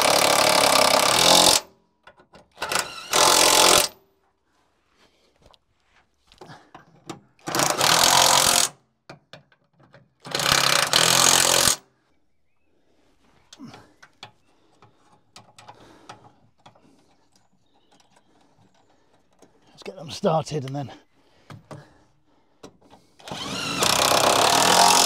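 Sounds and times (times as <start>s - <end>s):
power tool rattling: 0.0s - 4.0s, 7.1s - 8.8s, 9.4s - 11.8s, 22.9s - 25.0s
quiet clicks and knocks: 13.4s - 19.7s.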